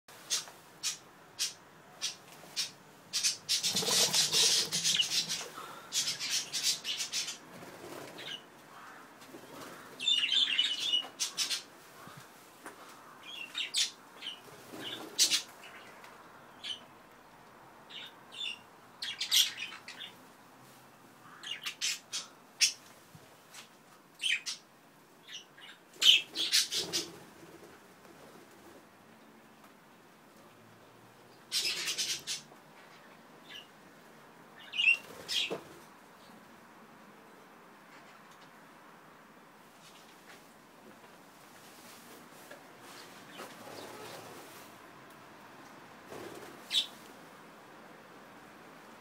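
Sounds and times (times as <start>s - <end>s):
budgerigars and cockatiels chirping: 0.3s - 7.4s, 31.5s - 32.4s.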